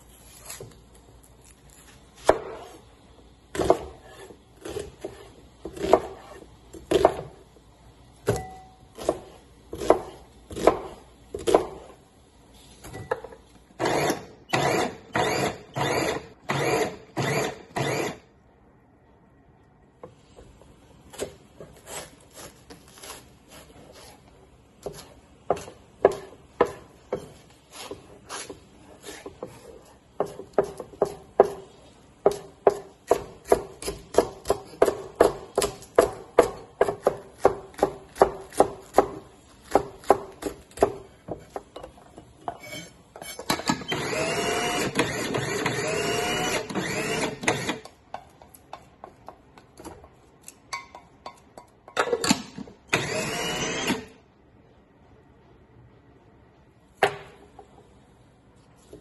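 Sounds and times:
knife chopping on wooden board: 2.2s - 2.8s, 3.5s - 7.3s, 8.2s - 11.9s, 24.8s - 41.7s
electric food processor running: 44.0s - 47.7s, 53.0s - 54.0s.

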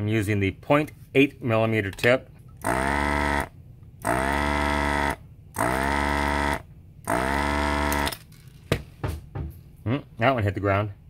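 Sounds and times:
desoldering pump whine and hum: 2.5s - 8.2s.

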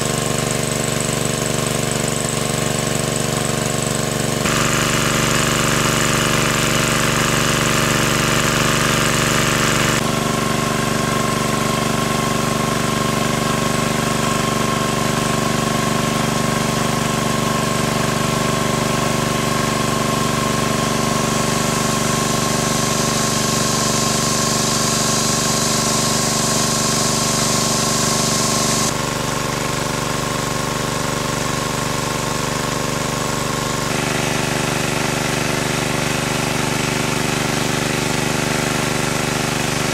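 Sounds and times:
water gushing from hose: 0.0s - 15.5s, 16.8s - 29.0s
small pump engine running: 0.0s - 39.9s.

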